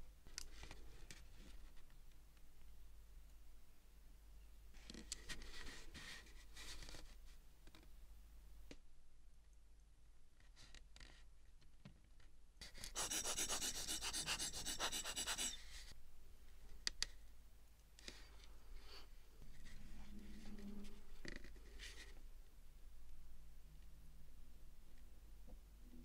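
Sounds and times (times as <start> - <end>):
tool scratching watch parts: 12.6 - 15.6.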